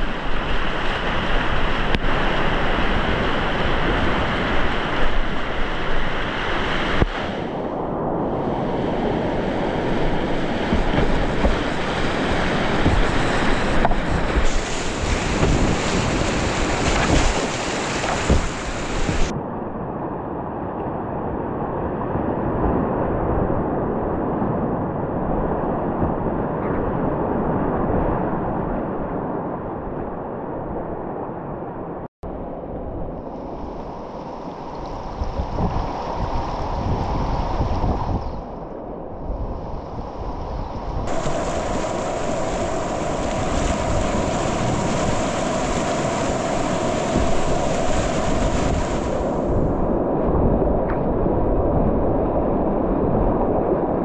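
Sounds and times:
whitewater rushing: 0.0 - 7.7, 8.3 - 19.3, 41.1 - 50.4
wind noise on microphone: 0.0 - 54.0.

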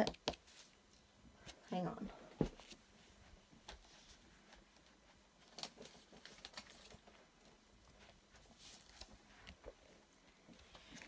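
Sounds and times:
faint handling clicks and rustles: 0.4 - 11.0.

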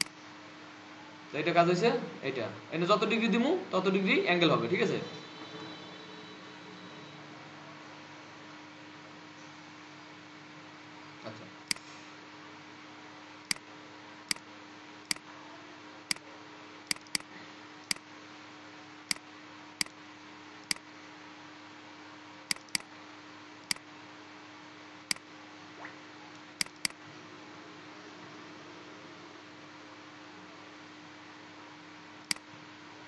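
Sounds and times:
computer mouse clicking: 16.9 - 17.3, 22.5 - 22.9, 26.6 - 27.0.

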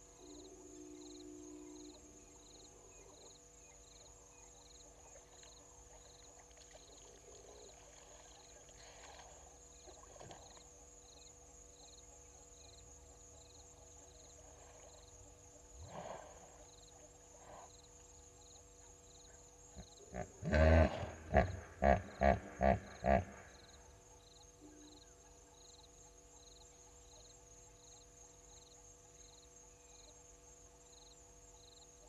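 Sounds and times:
high-pitched insect hum: 0.0 - 32.0
faint calls: 19.3 - 24.0.

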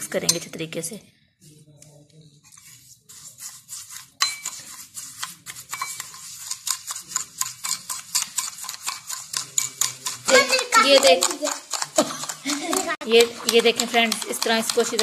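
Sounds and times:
metal spoon scraping and clinking bowl: 0.0 - 0.6, 3.2 - 15.0.

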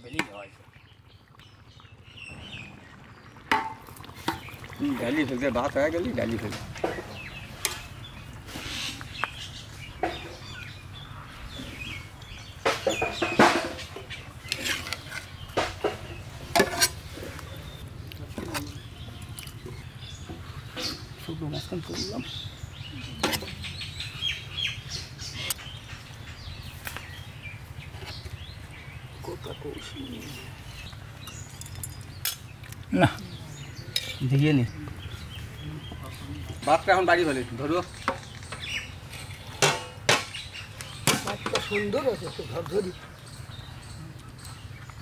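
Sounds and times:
birds chirping: 0.0 - 45.0.

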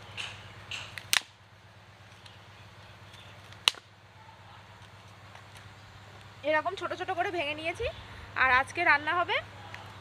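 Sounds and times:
dung sticks cracking by hand: 0.2 - 1.4, 3.1 - 3.9.

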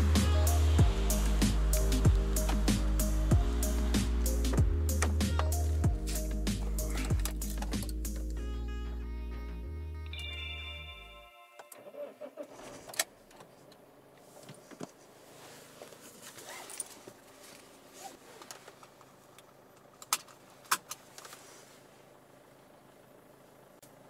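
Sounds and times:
rustling inside a car: 1.0 - 2.9, 3.6 - 8.4, 11.8 - 23.6.

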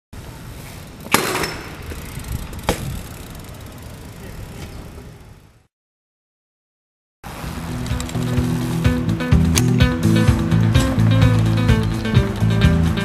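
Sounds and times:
low rolling noise: 0.2 - 5.7, 7.3 - 13.0
outdoor noise: 0.2 - 5.7, 7.2 - 13.0
bike striking concrete ledge: 1.0 - 3.6.

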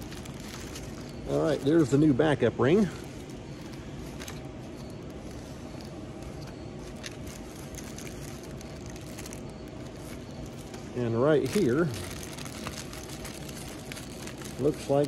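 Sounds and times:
low background hum and hiss: 0.0 - 15.0.

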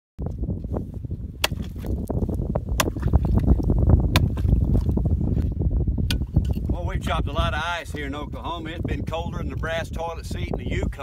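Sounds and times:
water sloshing: 2.8 - 3.6.

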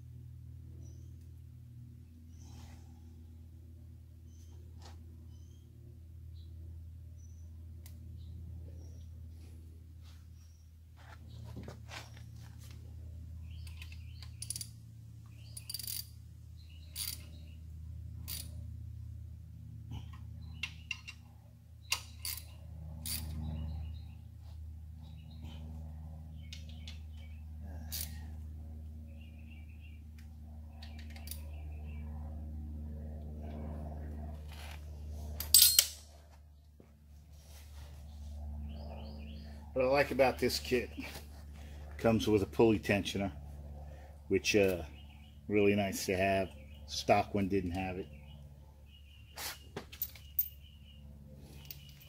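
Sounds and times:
steady low hum: 0.0 - 52.0
socket tool clinking on metal: 35.5 - 36.0.

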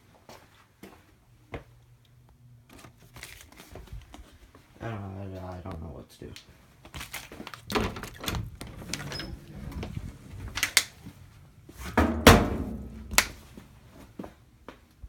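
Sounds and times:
door opening: 7.5 - 11.2
knocks and thumps: 11.8 - 13.4.

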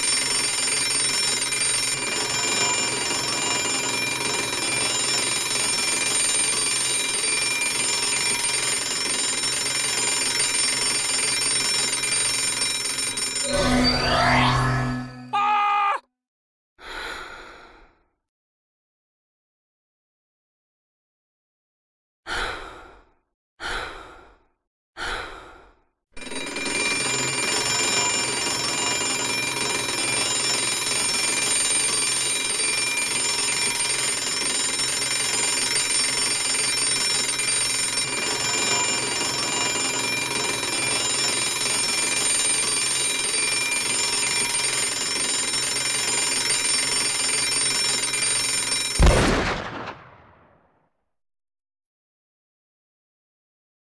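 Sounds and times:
alarm clock ringing: 0.0 - 15.3, 26.2 - 49.0
gunshot: 49.0 - 50.8.

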